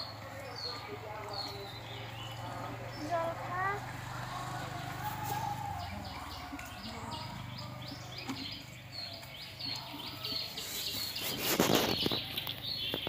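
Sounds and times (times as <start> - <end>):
small bird chirping: 4.9 - 13.0.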